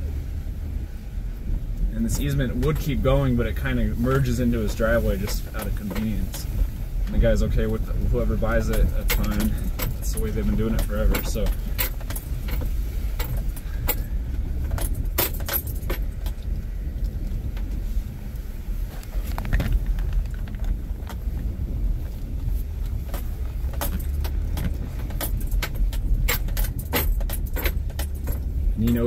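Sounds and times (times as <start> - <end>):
vehicle interior rumble: 0.0 - 29.0
sharp rattles: 2.1 - 17.7, 22.3 - 29.0
keys jangling: 8.7 - 14.1, 14.7 - 16.4, 23.7 - 29.0.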